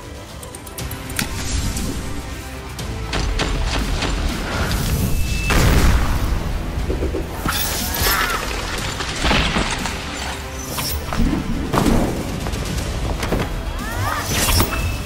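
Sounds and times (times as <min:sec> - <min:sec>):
music with heavy bass: 0:00.0 - 0:15.0
crashing impacts: 0:03.0 - 0:13.6.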